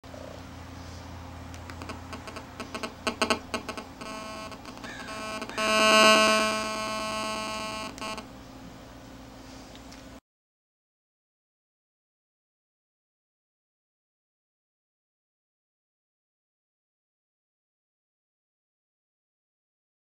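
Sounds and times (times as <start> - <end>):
speaker interference clicks: 1.5 - 8.3
electronic interference buzz: 1.7 - 8.4.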